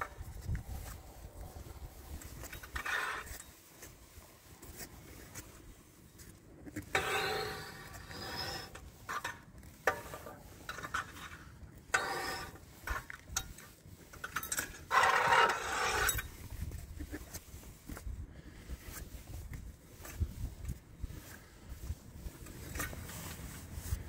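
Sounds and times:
scraping and clicking in wheel hub: 2.1 - 5.6, 6.2 - 18.0, 22.2 - 24.0.

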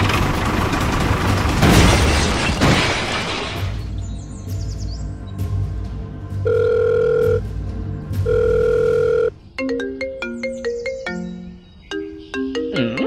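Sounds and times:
background music: 0.0 - 13.0
ringtone melody: 6.4 - 7.4, 8.2 - 13.0
long calling tone beeps: 6.5 - 7.4, 8.2 - 9.4.

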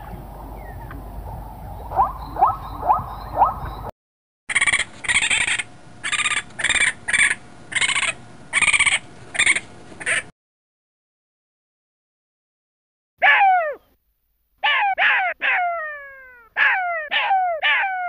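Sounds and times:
raccoon chittering squeals: 4.5 - 10.3, 14.6 - 18.0
zebra yelping: 14.6 - 18.0.

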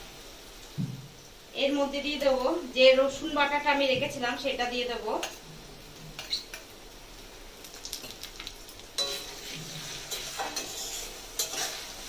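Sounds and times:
onions sizzling in oil: 0.0 - 12.0
spatula scraping and knocking pan: 9.0 - 12.0.

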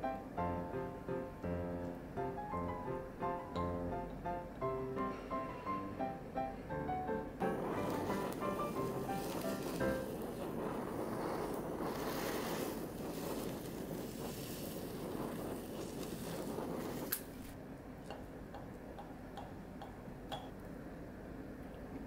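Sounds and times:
blowtorch flame hissing: 7.4 - 17.7
blowtorch click: 7.5 - 18.8.

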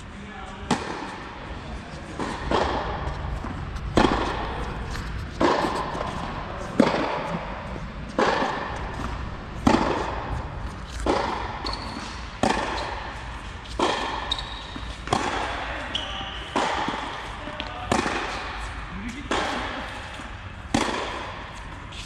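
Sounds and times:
tennis ball bouncing on court: 0.7 - 1.4, 2.1 - 22.0
tennis ball hit by rackets: 0.7 - 1.4, 2.1 - 22.0.

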